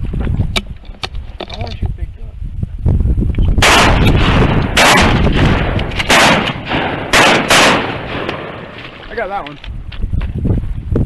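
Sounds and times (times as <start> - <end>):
shotgun blasts: 3.6 - 9.0.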